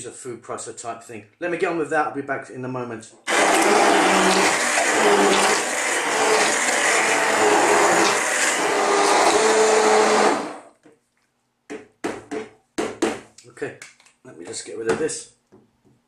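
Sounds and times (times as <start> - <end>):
immersion blender motor hum: 3.3 - 10.7.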